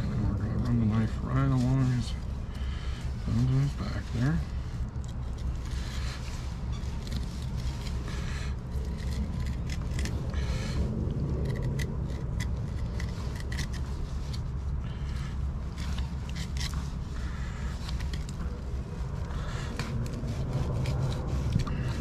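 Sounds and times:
low rumble: 0.0s - 22.0s
knife scraping fish: 4.8s - 10.3s, 11.4s - 14.5s, 15.7s - 17.1s.

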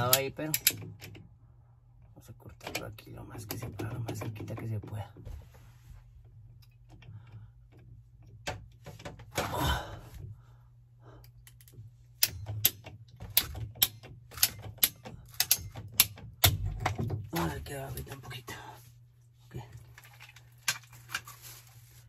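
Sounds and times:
pipe cutter ratchet clicks: 0.0s - 1.2s, 11.4s - 16.6s.

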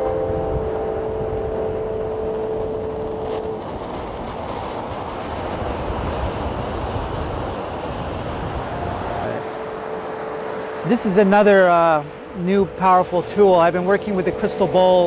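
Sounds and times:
plucked harp note: 0.0s - 3.7s
surf breaking: 0.0s - 15.0s
wind buffeting microphone: 0.0s - 15.0s.

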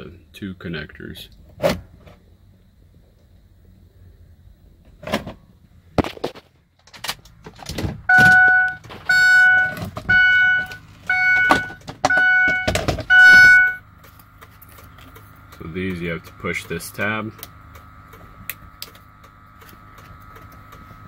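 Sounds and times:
vehicle warning chime beeping: 8.1s - 14.0s.

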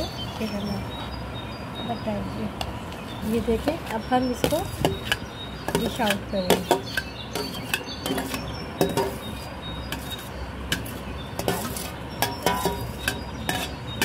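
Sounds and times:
metal spoon scraping steel bowl: 4.4s - 14.0s.

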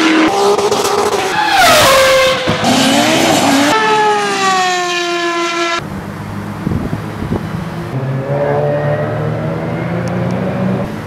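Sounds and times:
racing car engines revving: 0.0s - 11.0s.

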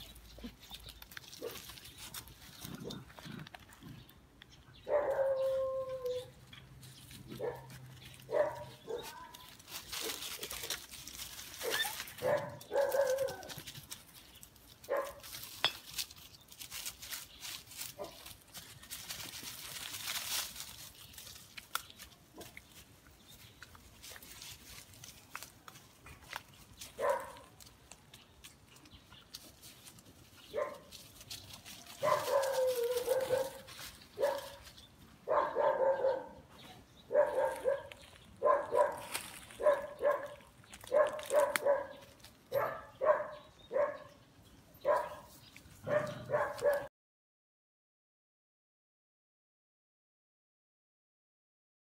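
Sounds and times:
puppies barking and yipping: 0.0s - 4.0s, 4.8s - 14.0s, 14.8s - 15.7s, 17.7s - 20.6s, 26.0s - 46.9s.

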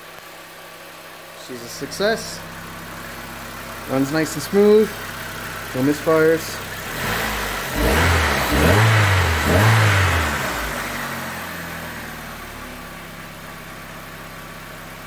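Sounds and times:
car engine idling: 0.0s - 15.0s
car engine revving: 1.6s - 13.3s.

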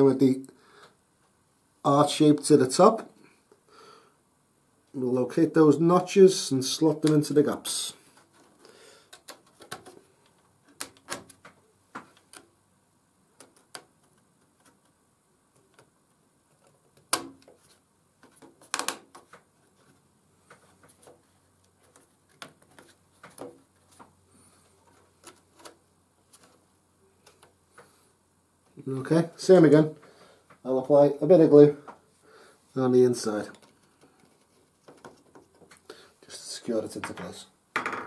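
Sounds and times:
wooden pieces clicking and tapping: 8.2s - 12.6s, 13.4s - 19.5s, 20.4s - 24.1s, 33.5s - 35.9s.

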